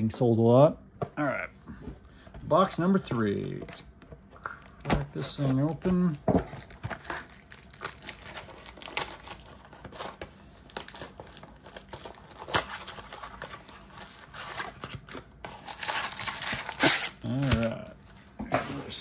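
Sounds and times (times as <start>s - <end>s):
packaging crinkling and ticking: 5.6s - 14.2s
packaging tearing: 6.6s - 17.9s.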